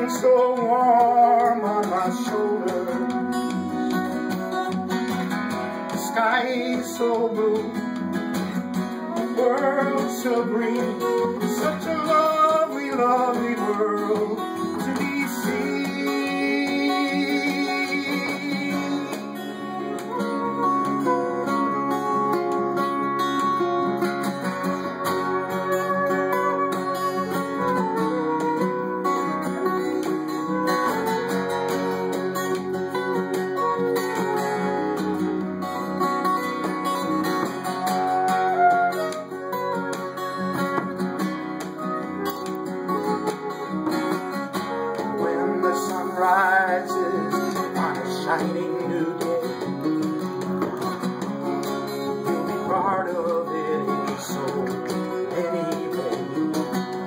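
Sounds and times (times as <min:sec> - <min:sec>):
wind instrument melody: 0:00.0 - 0:50.3, 0:51.4 - 0:57.0
acoustic guitar strumming: 0:00.0 - 0:57.0
frame drum tapped: 0:49.2 - 0:51.8.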